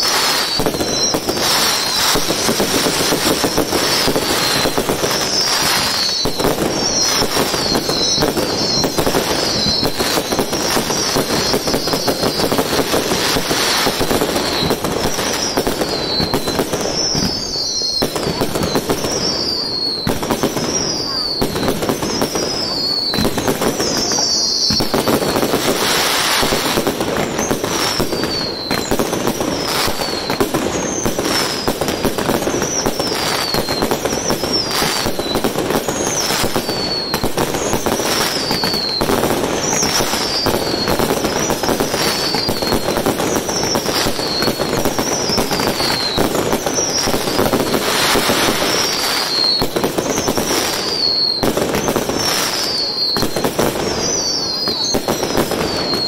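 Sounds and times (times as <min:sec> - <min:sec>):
falling firework whistle: 0:00.0 - 0:56.0
fireworks crackling and popping: 0:00.0 - 0:56.0.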